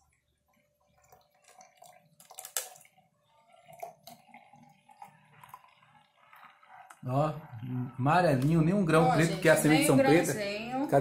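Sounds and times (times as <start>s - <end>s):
juice trickling and splashing: 0.0s - 9.6s.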